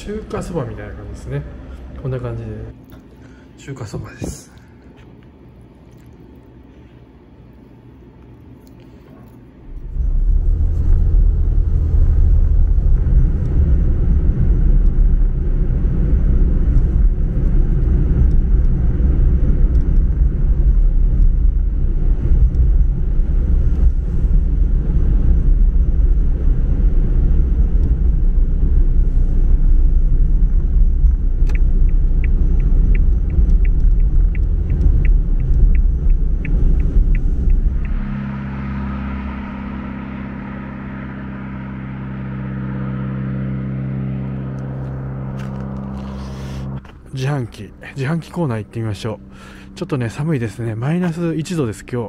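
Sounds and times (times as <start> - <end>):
car engine and tyre rumble: 0.0 - 3.0, 7.9 - 52.0
turn indicator ticking: 31.0 - 38.1.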